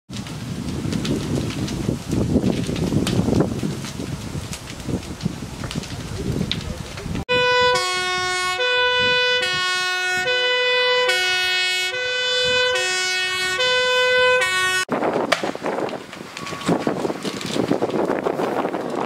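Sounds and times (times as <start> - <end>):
fire engine two-tone siren: 7.3 - 14.9, 16.3 - 16.9.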